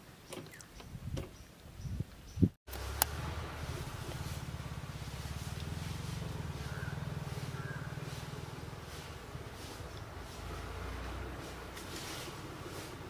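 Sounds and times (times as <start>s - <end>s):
low engine rumble: 2.7s - 13.0s.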